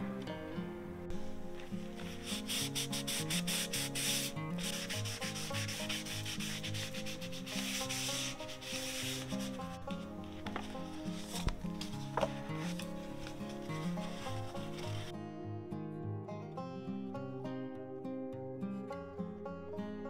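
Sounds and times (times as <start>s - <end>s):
cloth rubbing on cardstock: 1.6s - 15.1s.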